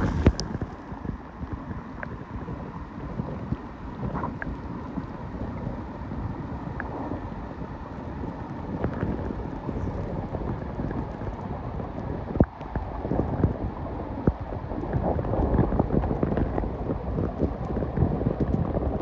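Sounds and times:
crackling clicks: 0:00.0 - 0:00.8
muffled underwater stream rumble: 0:00.0 - 0:19.0.

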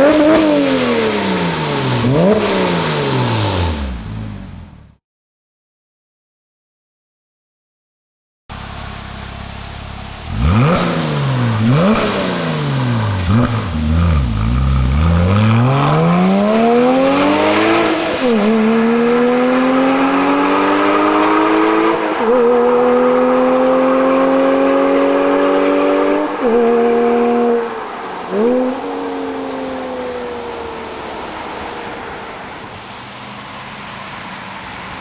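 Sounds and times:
car engine revving and accelerating: 0:00.0 - 0:04.6, 0:08.7 - 0:35.0.

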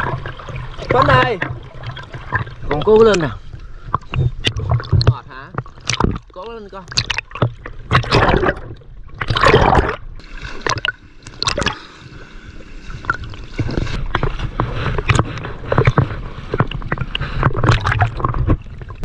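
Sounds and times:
river water splashing and gurgling: 0:00.0 - 0:19.0.

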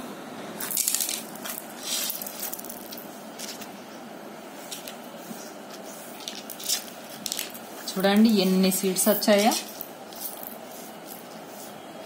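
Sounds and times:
dried gourd shell crackling: 0:00.6 - 0:03.8, 0:04.7 - 0:08.0.

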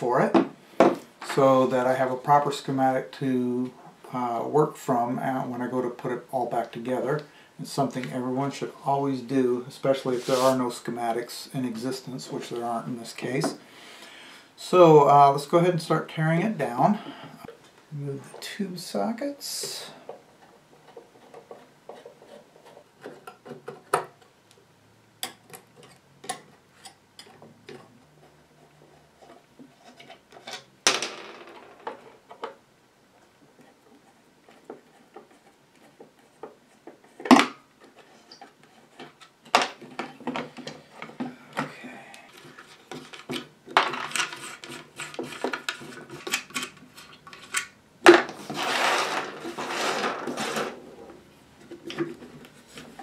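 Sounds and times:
scraping on wooden case: 0:48.2 - 0:50.9.

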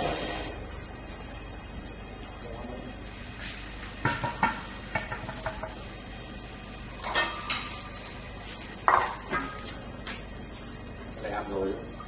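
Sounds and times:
metal bowls and utensils clattering: 0:07.0 - 0:07.9.

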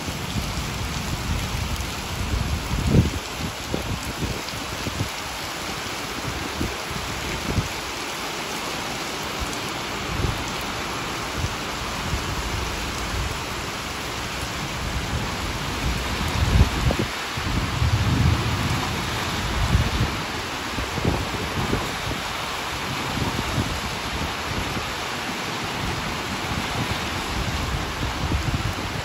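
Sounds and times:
rain on brick paving: 0:00.0 - 0:29.0
low rumbles: 0:15.0 - 0:20.2.

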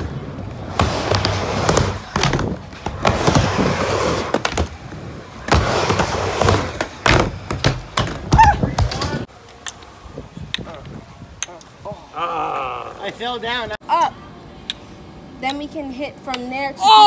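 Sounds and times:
skateboard wheels rolling on ramp: 0:00.0 - 0:09.3.

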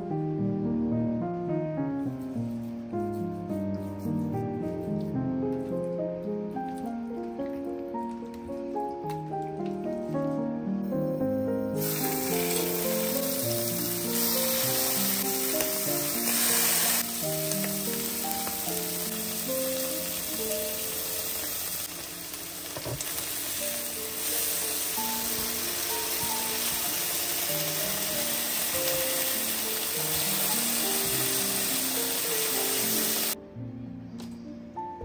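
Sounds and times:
background music with piano: 0:00.0 - 0:22.0, 0:22.6 - 0:35.0
liver sizzling in a pan: 0:11.8 - 0:33.4.

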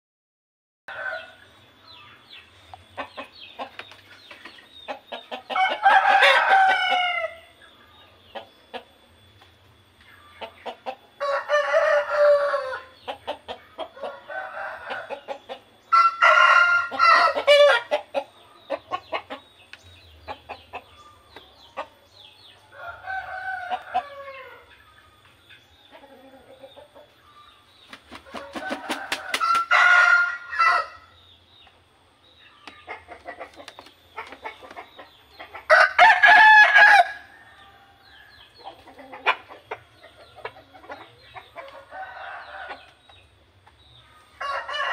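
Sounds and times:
roosters crowing: 0:00.9 - 0:01.6, 0:05.3 - 0:07.6, 0:10.9 - 0:19.2, 0:22.6 - 0:24.8, 0:28.1 - 0:31.2, 0:35.5 - 0:39.4, 0:41.5 - 0:43.0, 0:44.2 - 0:44.9.

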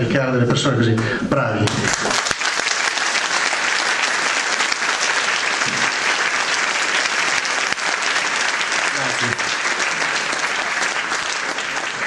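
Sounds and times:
audience applauding: 0:01.7 - 0:12.0.

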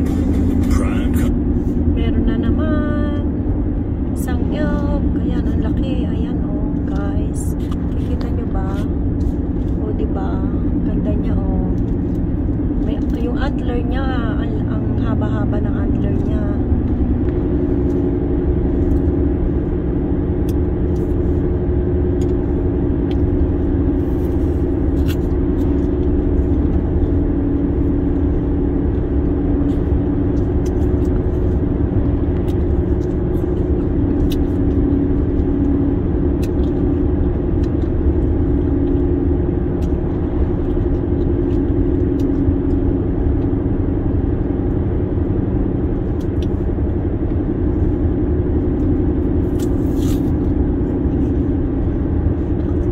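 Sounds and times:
car engine and tyres humming: 0:00.0 - 0:52.9.

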